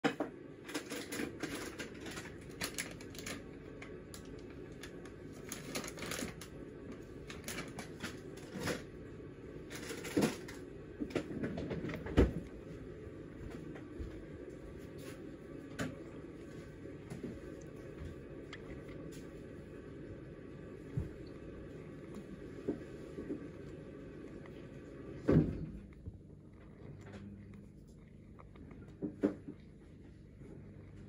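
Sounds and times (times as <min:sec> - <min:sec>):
crabs clicking and scratching: 0:00.6 - 0:09.0, 0:09.6 - 0:12.4.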